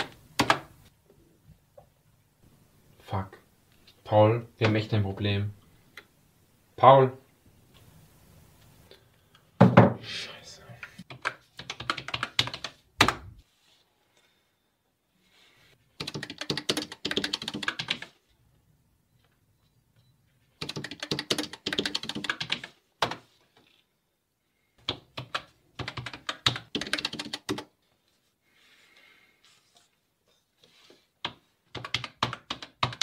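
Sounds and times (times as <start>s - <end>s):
fast typing on keyboard: 11.1s - 12.8s, 16.0s - 18.2s, 20.6s - 23.2s, 24.8s - 27.7s, 31.7s - 33.0s.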